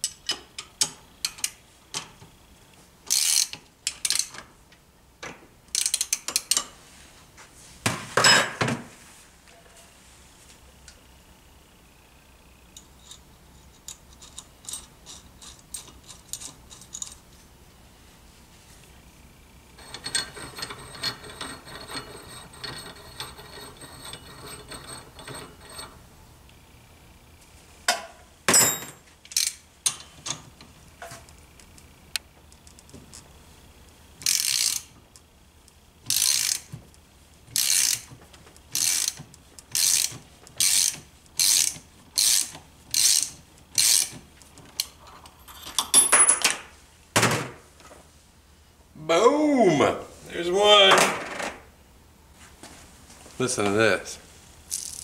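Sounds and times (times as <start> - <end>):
socket ratchet clicking: 5.7 - 6.6, 34.2 - 34.9, 38.7 - 44.2.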